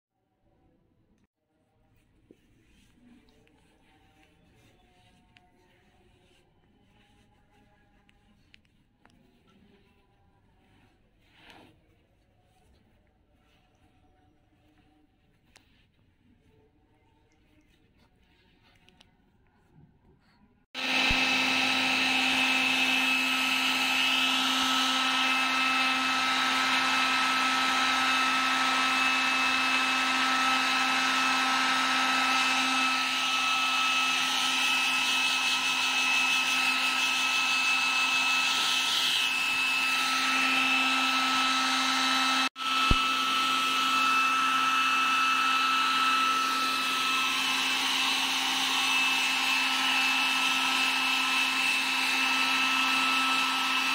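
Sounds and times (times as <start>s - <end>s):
hair dryer click: 20.8s - 53.9s
hair dryer running: 20.8s - 53.9s.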